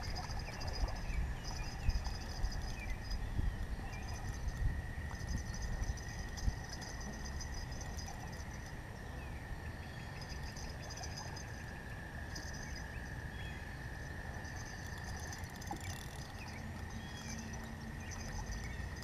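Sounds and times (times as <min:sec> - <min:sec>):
insect chirping trills: 0:00.0 - 0:19.0
insects buzzing: 0:00.0 - 0:19.0
low steady rumble: 0:00.0 - 0:19.0.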